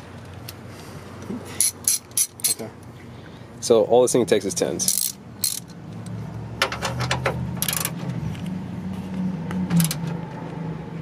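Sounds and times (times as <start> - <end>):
socket ratchet clicking: 1.6 - 2.6, 4.8 - 6.2.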